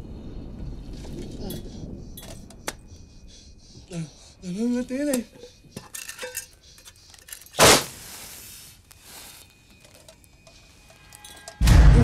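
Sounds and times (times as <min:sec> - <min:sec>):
faint clinks: 0:05.1 - 0:07.6, 0:09.5 - 0:11.6
rustles: 0:05.3 - 0:11.6.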